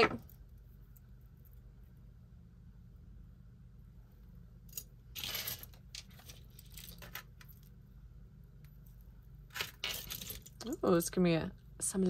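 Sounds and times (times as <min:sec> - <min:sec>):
metal jewelry clinking: 0:04.7 - 0:07.6, 0:09.5 - 0:10.7.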